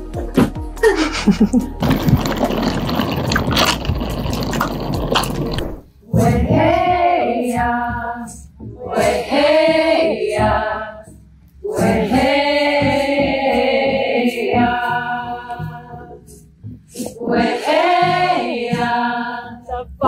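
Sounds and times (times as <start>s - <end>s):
women singing a chant: 6.0s - 20.0s.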